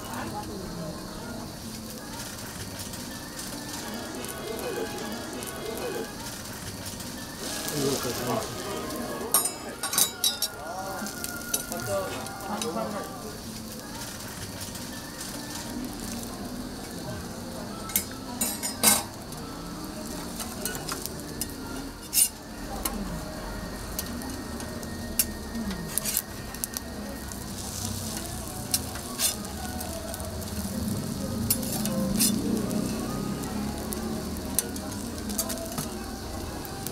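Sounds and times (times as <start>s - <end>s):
food sizzling on griddle: 0.0s - 36.9s
spatula clinking on griddle: 9.3s - 10.7s, 17.8s - 19.2s, 20.4s - 23.0s, 31.4s - 32.5s.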